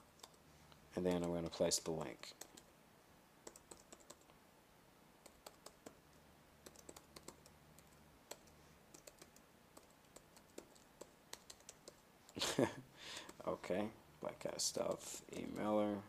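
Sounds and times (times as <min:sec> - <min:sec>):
keyboard keystrokes: 0:06.6 - 0:12.0.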